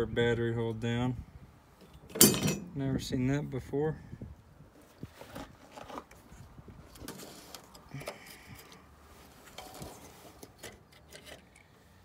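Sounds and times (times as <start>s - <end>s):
hand rustling over parts: 4.8s - 12.0s.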